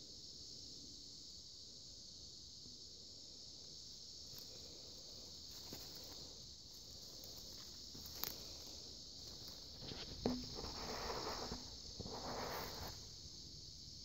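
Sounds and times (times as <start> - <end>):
high-pitched insect chorus: 0.0 - 14.0
faint rustles: 4.2 - 13.2.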